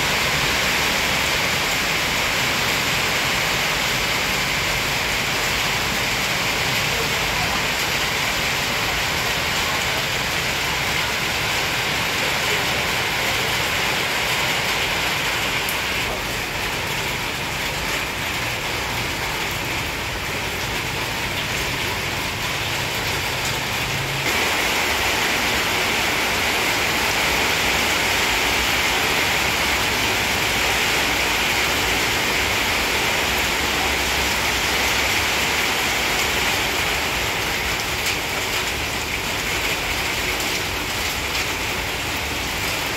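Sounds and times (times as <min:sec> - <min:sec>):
steady rushing hiss: 0:24.0 - 0:37.1.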